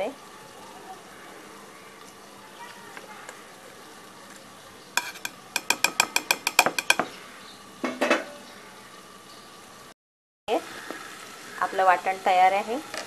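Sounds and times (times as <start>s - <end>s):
metallic clatter: 5.0s - 7.1s
utensil clinking on steel jar: 5.0s - 7.1s.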